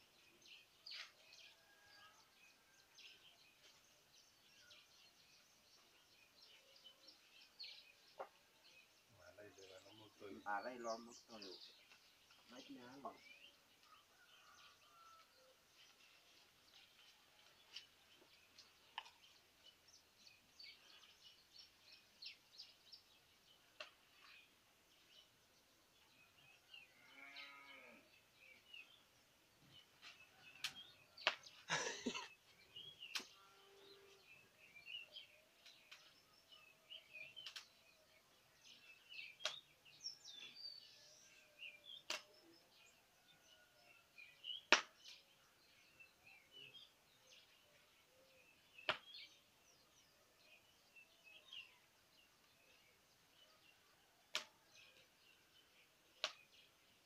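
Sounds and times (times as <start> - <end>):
small birds chirping: 0.0 - 57.0.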